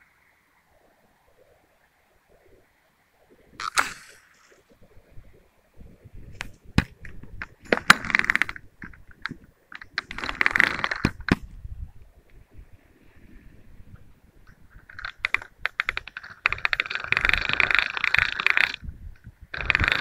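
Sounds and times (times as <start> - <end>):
fishing gear clicking and knocking: 6.4 - 11.5, 14.5 - 20.0.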